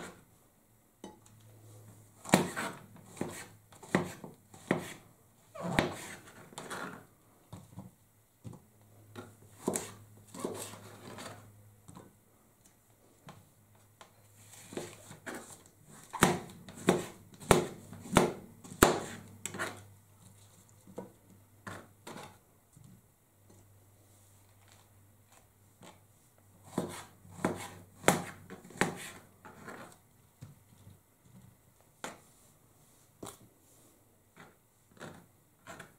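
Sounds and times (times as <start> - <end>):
knife chopping on cutting board: 2.2 - 5.0, 16.2 - 19.7, 26.7 - 29.2.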